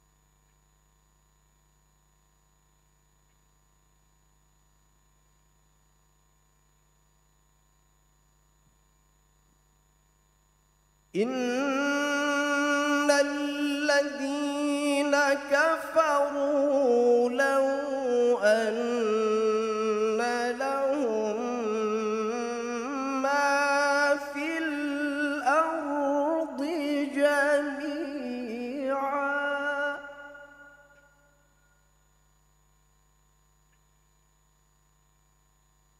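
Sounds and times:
man reciting melodically: 11.2s - 30.9s.

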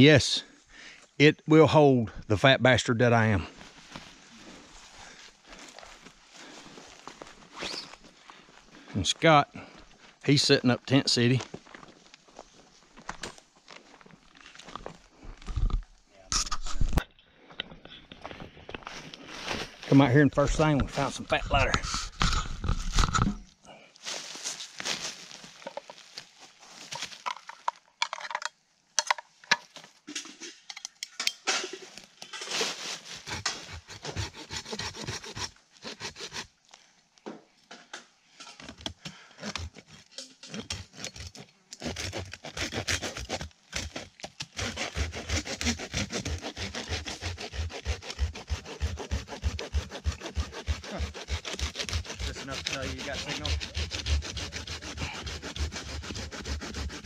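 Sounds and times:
hand saw sawing wood: 32.6s - 36.5s, 39.4s - 57.0s.

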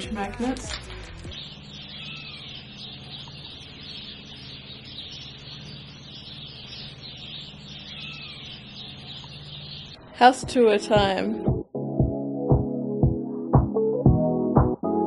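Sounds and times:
faint bird calls: 0.9s - 10.4s.

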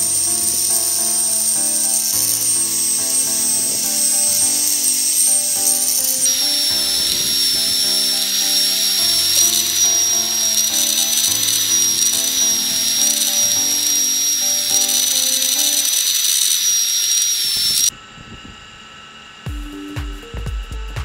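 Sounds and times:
background music: 0.0s - 16.0s
electric drill whining: 0.0s - 17.9s.

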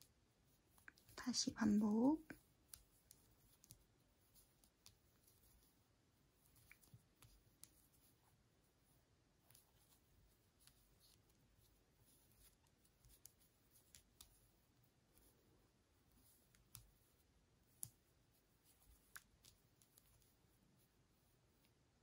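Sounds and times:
crochet hook clicking: 2.3s - 3.8s, 12.1s - 14.4s, 16.2s - 17.0s, 17.7s - 18.0s.

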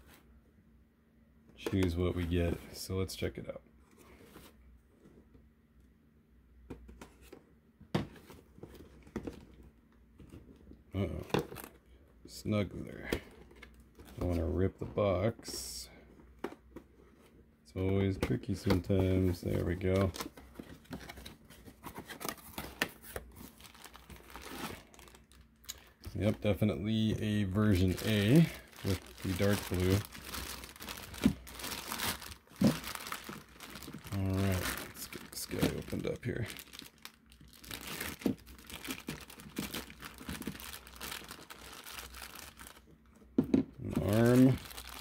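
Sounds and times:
cardboard rustling and scraping: 18.1s - 25.2s
plastic bag crinkling: 23.5s - 42.9s, 44.0s - 45.0s.

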